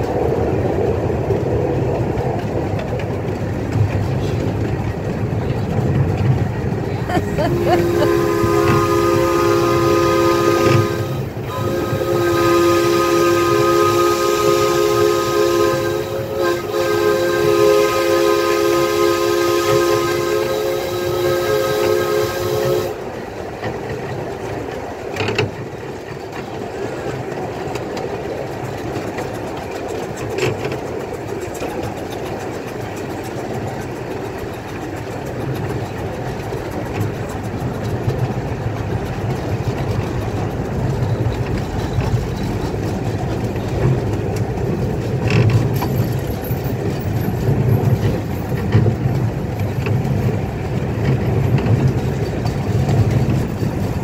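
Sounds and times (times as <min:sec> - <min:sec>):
small train rumbling on track: 0:00.0 - 0:54.0
steam whistle chord: 0:07.4 - 0:23.0.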